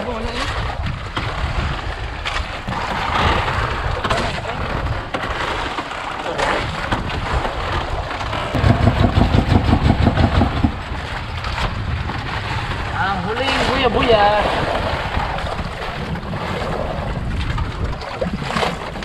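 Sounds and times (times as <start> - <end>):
water moving against boat: 0.0 - 19.0
wind buffeting microphone: 0.0 - 19.0
rapid low pulsing rumble: 6.6 - 19.0.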